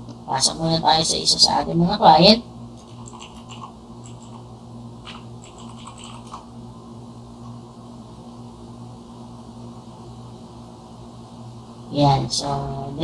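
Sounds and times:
low electrical hum: 0.0s - 13.0s
keyboard keys tapping: 2.8s - 4.4s, 5.0s - 6.4s.

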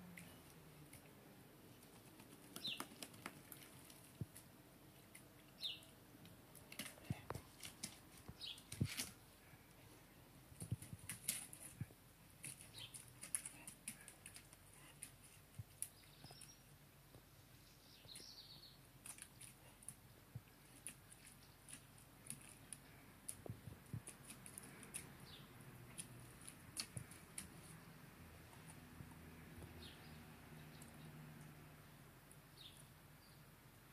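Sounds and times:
dog claws clicking on stone: 12.4s - 15.2s
faint bird chirps: 15.9s - 16.7s, 17.6s - 18.8s.

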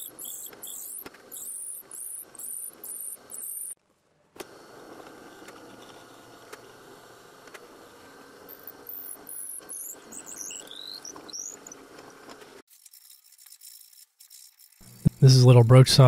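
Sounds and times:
drill bit squeaking: 0.0s - 3.8s, 8.5s - 12.2s
drill press boring wood: 0.0s - 3.8s, 4.4s - 15.3s.

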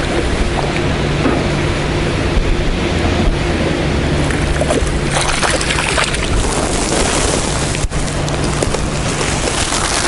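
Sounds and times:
wind buffeting microphone: 0.0s - 10.0s
fish splashing in water: 4.2s - 8.1s, 8.7s - 10.0s.

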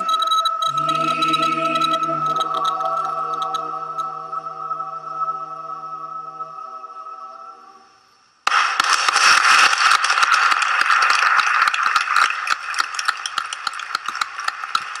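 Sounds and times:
applause: 8.5s - 15.0s.

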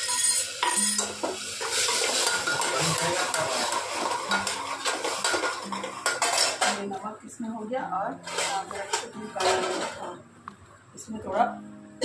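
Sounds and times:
spoon clinking against pot: 0.0s - 1.2s
food sizzling: 0.0s - 12.0s
metal spoon scraping pot: 8.2s - 10.1s.

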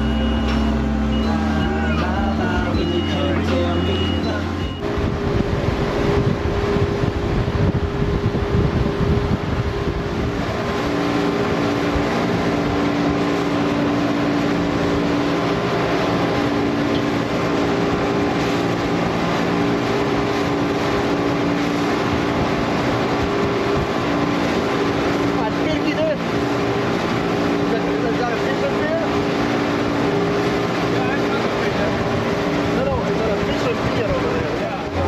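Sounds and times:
boat engines running: 0.0s - 35.0s
wind buffeting microphone: 4.6s - 28.2s.

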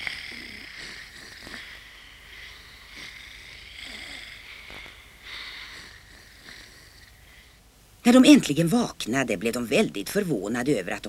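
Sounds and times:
soft snoring: 0.0s - 7.6s.

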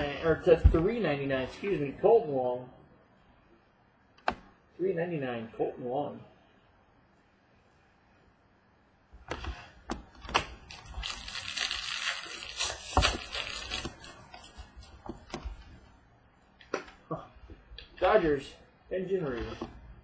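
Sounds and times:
cards sliding rustle: 9.3s - 15.8s.

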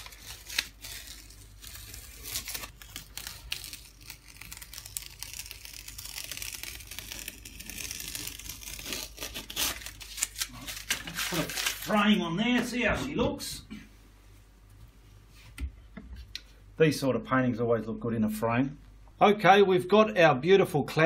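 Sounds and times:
masking tape peeling off: 0.0s - 12.0s.

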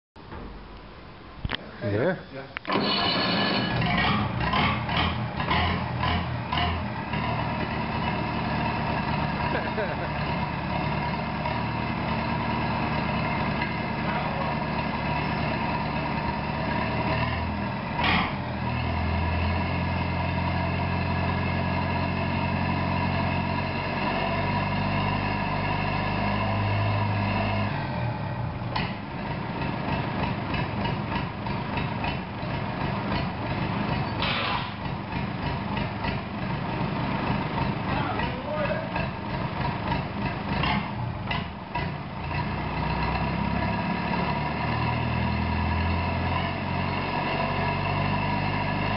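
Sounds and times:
diesel engine running: 2.6s - 48.9s.

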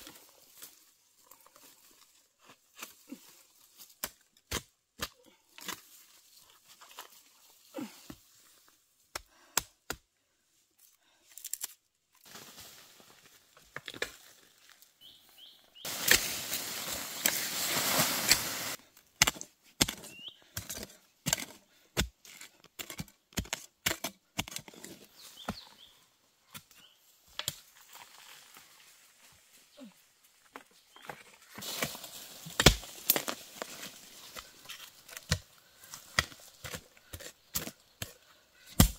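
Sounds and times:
loose soil scraping and rustling: 5.2s - 8.7s, 12.2s - 38.9s
digging bar knocking into soil: 31.6s - 38.9s.

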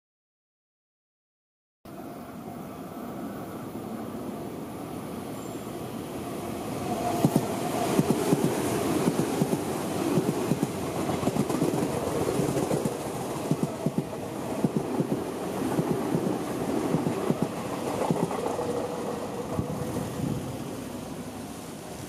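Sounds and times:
train rumble: 1.9s - 22.0s
train wheels clacking over rail joints: 7.2s - 19.9s.

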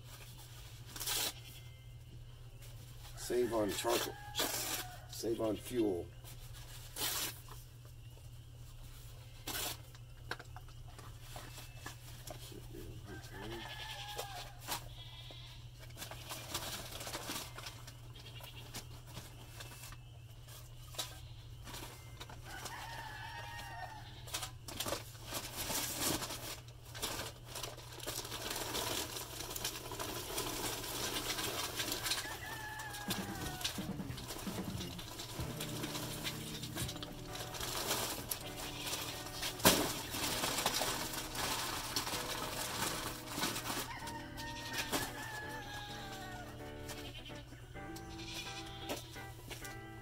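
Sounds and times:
goats bleating: 13.3s - 15.6s, 32.9s - 41.4s, 44.2s - 49.2s.

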